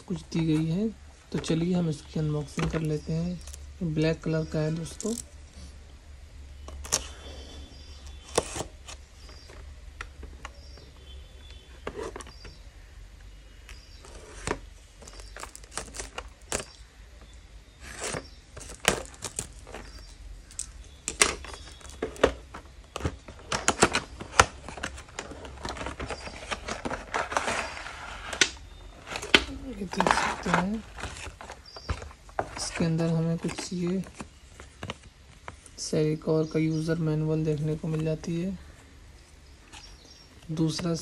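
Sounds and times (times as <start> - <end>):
cardboard box handled: 6.7 - 12.6, 13.7 - 16.8, 17.8 - 35.1
plastic wrap crinkling and tearing: 13.7 - 16.9, 17.8 - 32.8.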